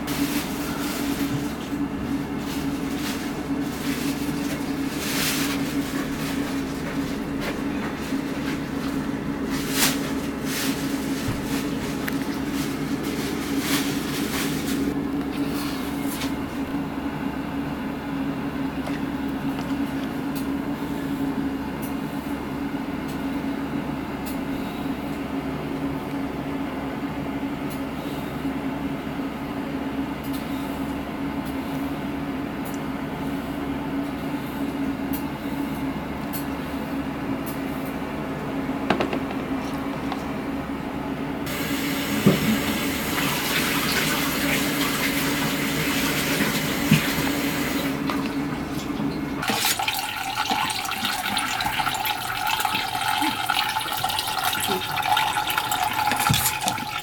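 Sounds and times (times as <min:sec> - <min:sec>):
low droning machine hum: 0:00.0 - 0:43.2.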